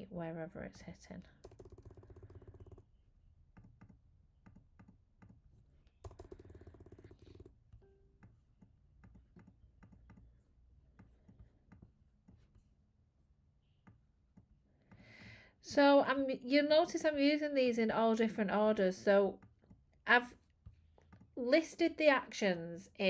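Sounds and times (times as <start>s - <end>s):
keyboard and mouse clicking: 1.4s - 2.8s, 3.6s - 5.4s, 6.0s - 7.5s.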